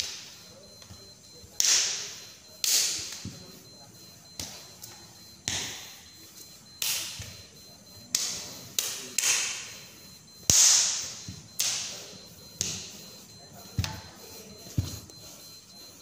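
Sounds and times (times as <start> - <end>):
sharp slaps of strikes: 1.6 - 3.4, 5.4 - 5.9, 6.8 - 7.3, 8.1 - 9.7, 10.5 - 12.0, 12.6 - 12.9.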